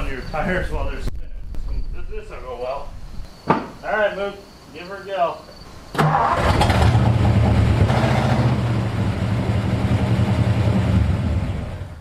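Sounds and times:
tires spinning in dirt: 6.0 - 12.0
truck engine revving: 6.0 - 12.0.

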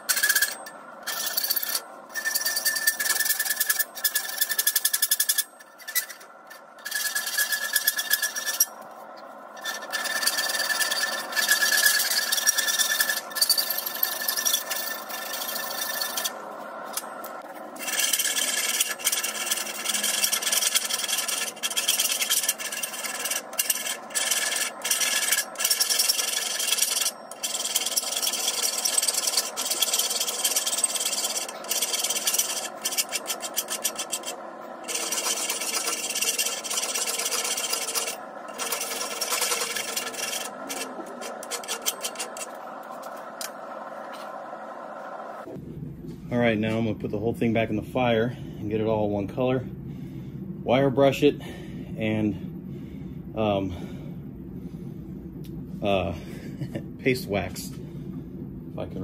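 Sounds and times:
hand file rasping on steel bar: 0.0 - 8.8, 9.6 - 16.4, 17.8 - 42.6.

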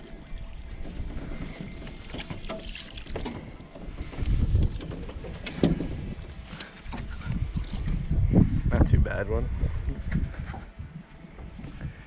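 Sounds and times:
water splashing: 0.0 - 6.6
wind or handling noise: 0.0 - 12.0.

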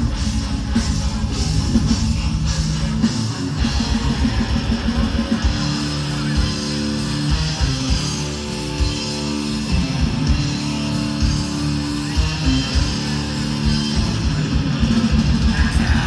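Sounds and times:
bass guitar: 0.0 - 16.0
distorted electric guitars: 0.0 - 16.0
drum kit: 0.0 - 16.0.

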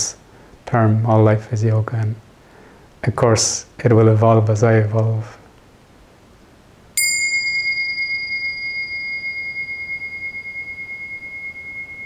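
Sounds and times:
small bell ringing: 7.0 - 12.0.

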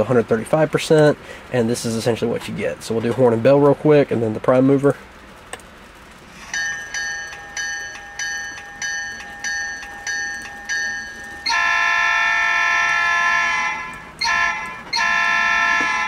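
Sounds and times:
locomotive bell ringing: 6.3 - 16.0
multi-chime air horn: 6.4 - 16.0.

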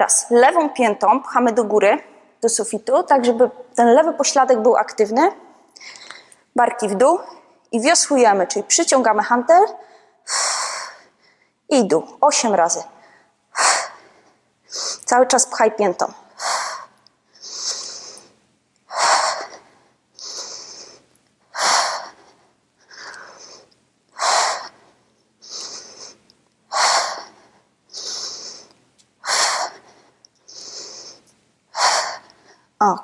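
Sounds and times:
woman inhaling: 5.8 - 6.5, 13.0 - 15.1, 16.3 - 32.8.

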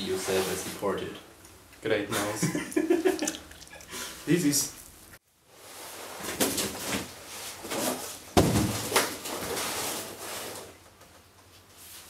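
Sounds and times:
cardboard box thudding: 8.4 - 9.0.

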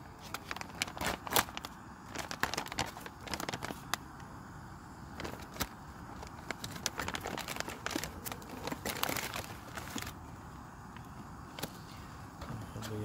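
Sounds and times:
plastic bag rustling: 0.0 - 4.1, 5.1 - 10.2
foil food pouch crinkling: 0.0 - 4.4, 5.0 - 10.2.

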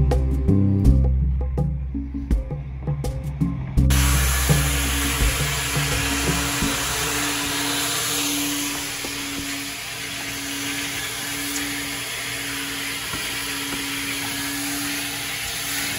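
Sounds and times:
air hissing through vacuum hose: 3.9 - 15.9
vacuum motor hum: 3.9 - 15.9.

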